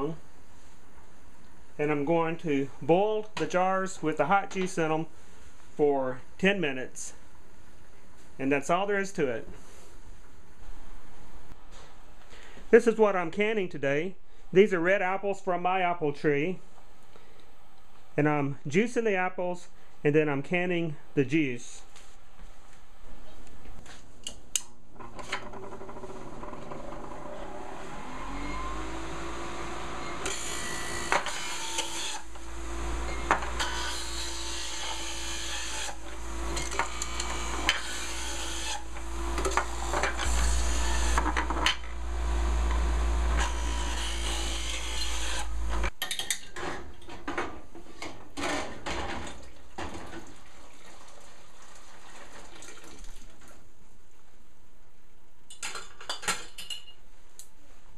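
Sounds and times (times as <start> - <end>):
juicer grinding apples: 25.0 - 45.9
juicer motor humming: 25.5 - 45.9.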